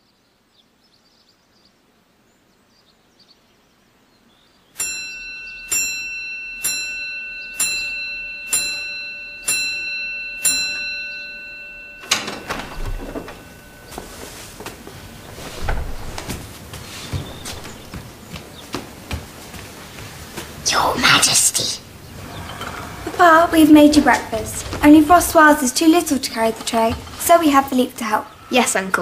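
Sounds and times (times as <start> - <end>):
chiming clock striking: 4.8 - 14.7
rustling: 11.5 - 28.5
door click: 12.0 - 13.8
footsteps: 12.0 - 28.4.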